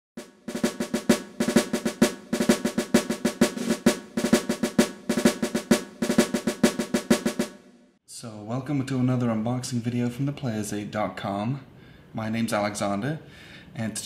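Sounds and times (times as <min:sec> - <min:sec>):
snare drum cadence: 0:00.2 - 0:07.7.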